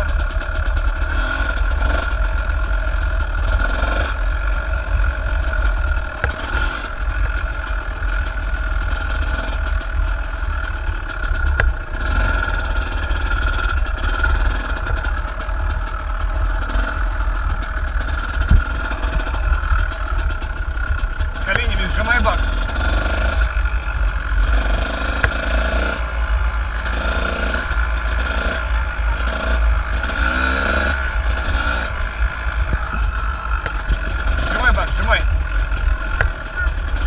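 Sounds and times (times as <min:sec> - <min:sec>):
dirt bike engine running: 0:00.0 - 0:37.0
wind rumble on microphone: 0:18.4 - 0:20.1, 0:30.9 - 0:37.0.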